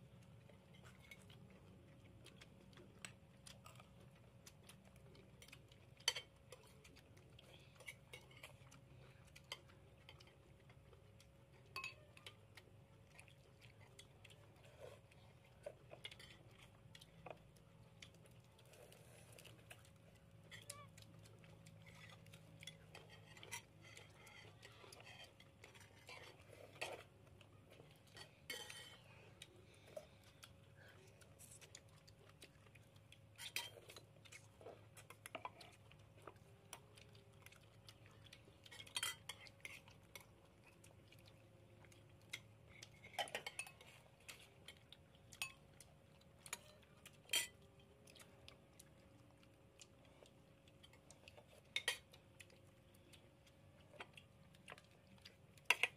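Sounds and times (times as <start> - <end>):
faint steady hum: 0.0 - 55.9
spoons clinking on plates: 11.8 - 12.3, 38.7 - 39.5, 46.5 - 47.6.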